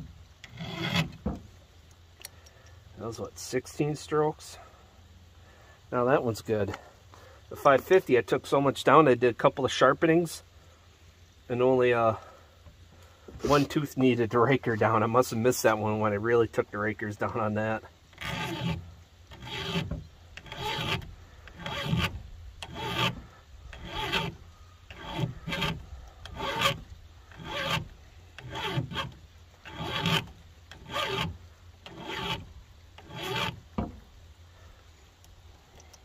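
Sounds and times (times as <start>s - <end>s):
file rasping on chain: 0.4s - 1.2s, 18.2s - 34.0s.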